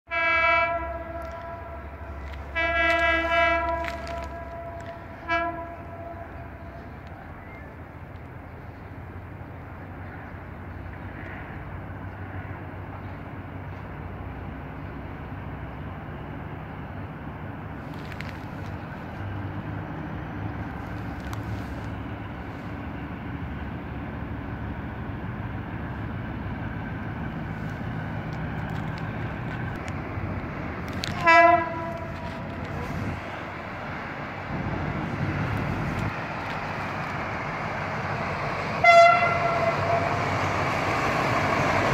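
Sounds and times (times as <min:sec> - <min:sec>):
locomotive horn blast: 0:00.1 - 0:07.0, 0:30.9 - 0:33.2, 0:38.8 - 0:40.4
diesel locomotive engine rumble: 0:00.1 - 0:41.9.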